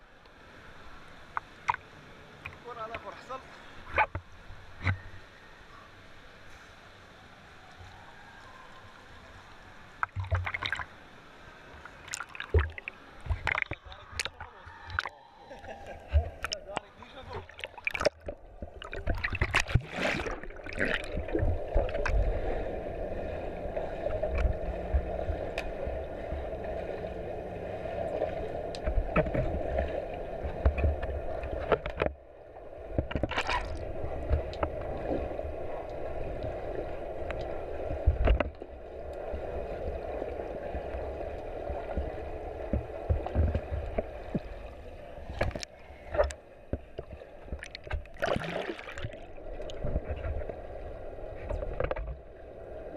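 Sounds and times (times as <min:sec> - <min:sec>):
muffled underwater rush: 0:07.2 - 0:52.9
water splashes: 0:07.4 - 0:52.9
low thumps from swimmers: 0:16.0 - 0:26.7, 0:41.5 - 0:44.6.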